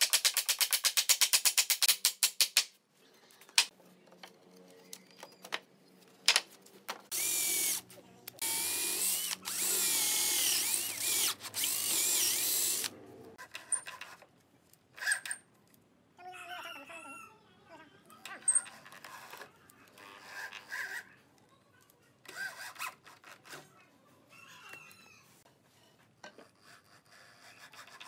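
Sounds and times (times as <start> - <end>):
cordless drill boring into wood: 7.1 - 7.8, 8.4 - 12.9.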